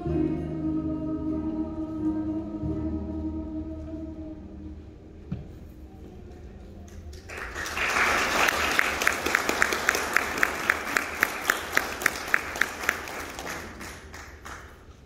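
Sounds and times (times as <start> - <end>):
loud close clapping: 6.9 - 15.0
audience applause: 7.1 - 15.0.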